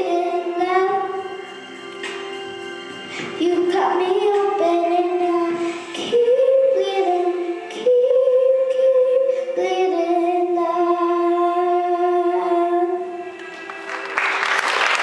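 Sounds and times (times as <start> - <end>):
girl singing into microphone: 0.0 - 1.5, 3.0 - 13.4.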